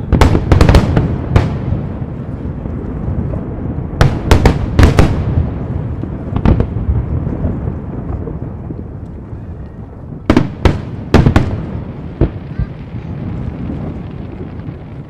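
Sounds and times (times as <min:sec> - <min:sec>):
low rumble of fireworks: 0:00.0 - 0:15.0.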